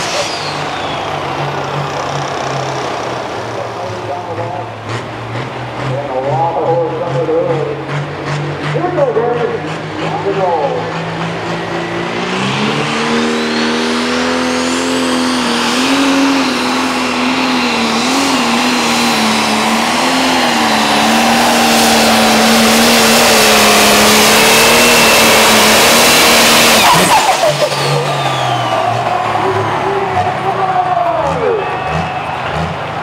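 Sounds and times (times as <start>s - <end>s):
high turbo whistle: 0.0s - 2.8s, 26.6s - 30.0s
diesel engine at full throttle: 0.0s - 33.0s.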